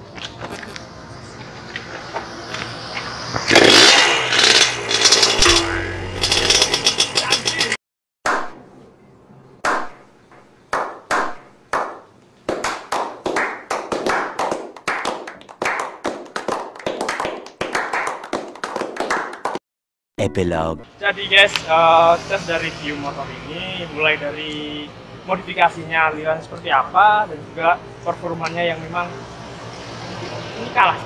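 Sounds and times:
two-stroke motorcycle engine: 3.4s - 7.8s
group clapping: 10.7s - 19.6s.

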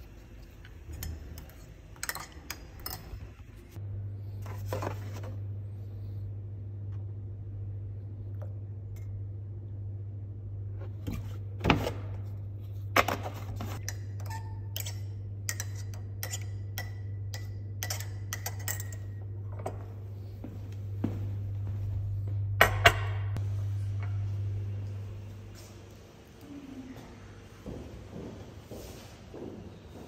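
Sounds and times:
steady low hum: 0.0s - 30.0s
crockery and spoon clinking: 13.8s - 19.2s.

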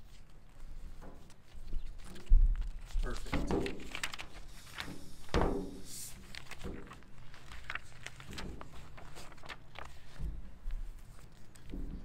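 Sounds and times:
paper pages flipping: 0.0s - 12.0s
thump: 4.9s - 5.8s
light taps and rustles: 10.0s - 12.0s.

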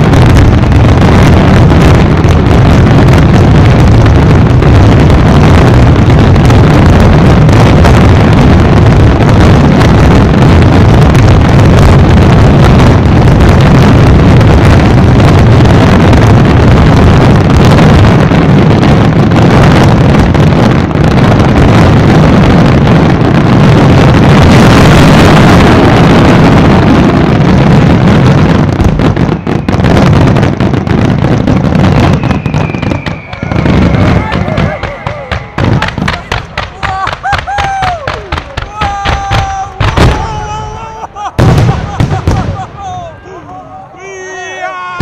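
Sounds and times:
firework shells bursting: 28.2s - 43.3s.

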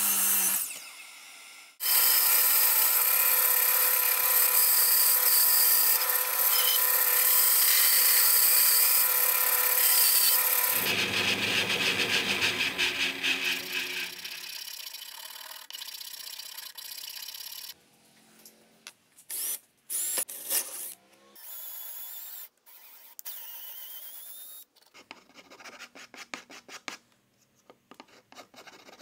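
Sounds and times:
cordless drill boring wood: 0.0s - 17.8s, 21.4s - 24.6s
small file rasping: 1.8s - 17.3s
file scraping wood: 9.6s - 14.5s.

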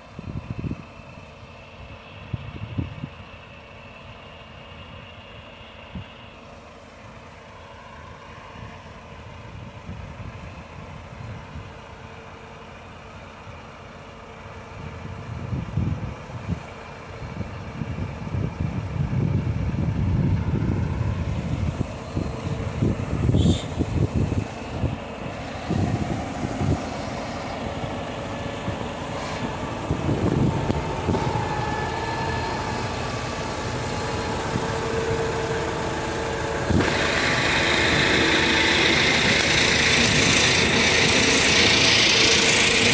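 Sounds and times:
machinery hum: 0.0s - 42.9s
tractor engine drone: 0.0s - 42.9s
rough low rumbling: 17.2s - 42.9s.

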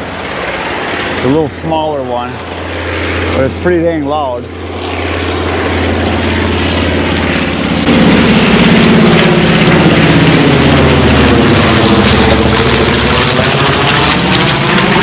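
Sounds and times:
propeller plane flying overhead: 0.0s - 15.0s.

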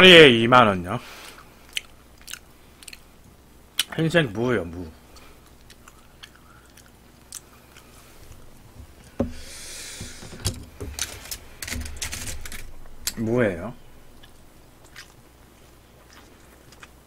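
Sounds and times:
chewing mouth clicks and smacks: 1.7s - 3.1s, 5.4s - 7.9s, 14.2s - 17.0s.

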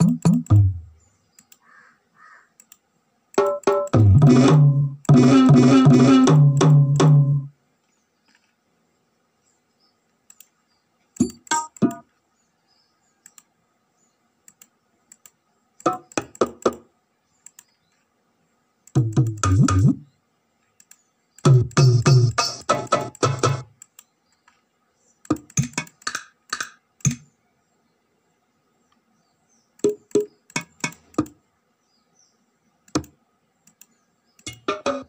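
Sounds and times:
mouse clicks: 0.0s - 0.7s, 1.3s - 1.8s, 2.5s - 4.0s, 10.1s - 12.1s, 13.2s - 13.5s, 14.4s - 18.0s, 18.8s - 20.0s, 20.7s - 21.5s, 23.7s - 24.6s, 25.2s - 27.3s, 29.7s - 31.4s, 32.8s - 34.9s
low dense drum pattern: 0.0s - 0.9s, 4.0s - 7.5s, 19.0s - 20.0s
percussion hits: 3.4s - 7.4s, 34.5s - 35.0s.

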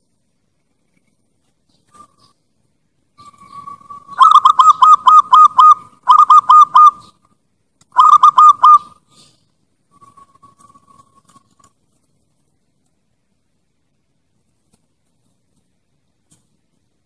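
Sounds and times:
dove cooing: 3.2s - 7.2s, 8.0s - 9.3s.

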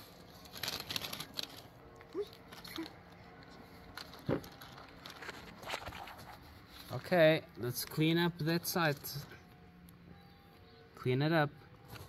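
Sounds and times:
rustling in garden soil: 0.0s - 9.2s.

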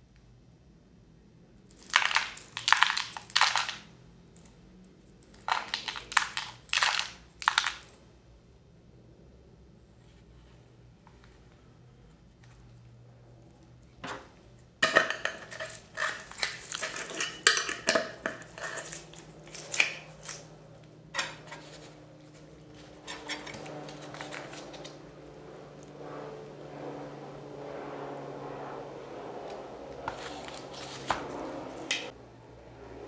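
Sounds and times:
sprinkles rattling in glass jar: 1.7s - 3.8s, 5.4s - 7.9s, 14.8s - 20.0s.

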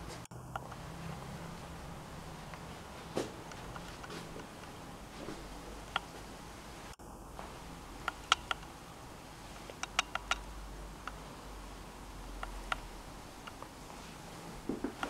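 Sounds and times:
sharp high clicks: 8.0s - 8.8s, 9.6s - 11.3s, 12.2s - 13.7s.

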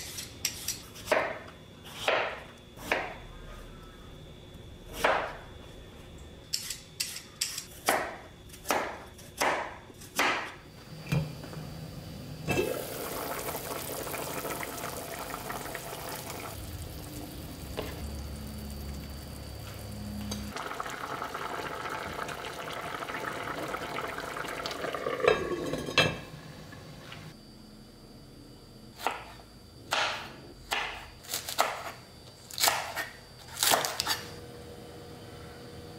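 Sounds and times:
knife chopping on cutting board: 0.1s - 3.2s, 7.8s - 10.6s
pot simmering: 12.5s - 27.3s.

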